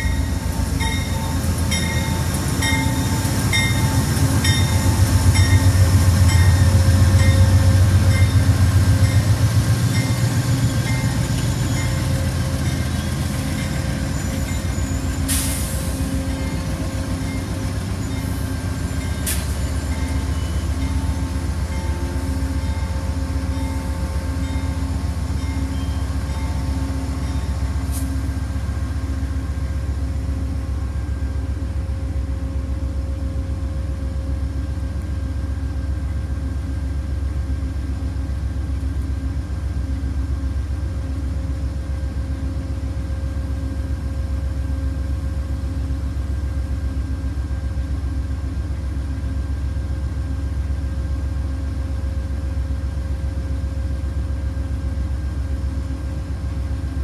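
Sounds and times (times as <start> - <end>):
train rumbling on rails: 0.0 - 57.0.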